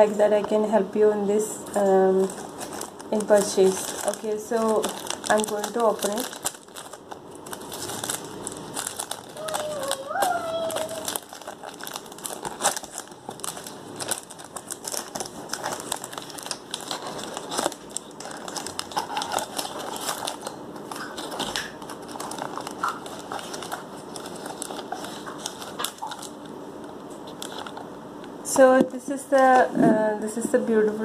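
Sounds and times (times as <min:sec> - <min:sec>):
plastic wrapper crinkling: 0:02.0 - 0:27.9
box rustling: 0:10.7 - 0:26.3.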